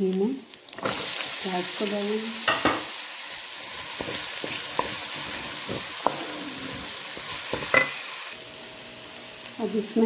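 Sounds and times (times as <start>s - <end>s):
onions sizzling in hot fat: 0.0s - 10.0s
wooden spoon stirring: 3.9s - 7.9s.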